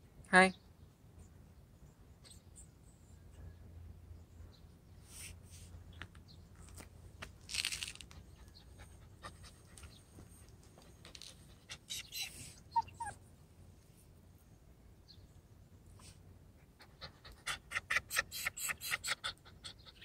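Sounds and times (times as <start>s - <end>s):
puppy panting: 8.0s - 13.2s, 16.6s - 20.0s
puppy whimpering: 11.7s - 13.2s, 17.2s - 20.0s.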